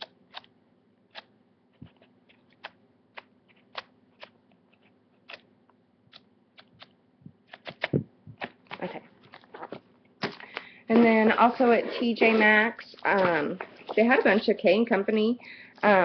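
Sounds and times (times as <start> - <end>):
paper pages flipping: 7.5 - 14.6.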